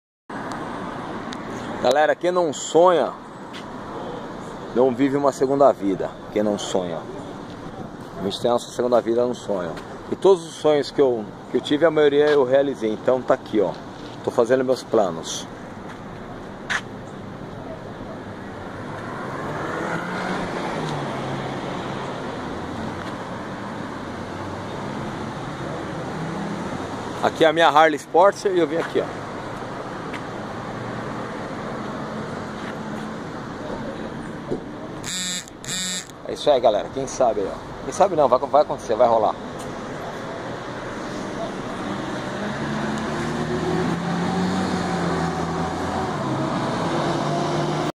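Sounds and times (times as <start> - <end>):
motor vehicle hum: 28.8 - 36.3, 39.4 - 47.9.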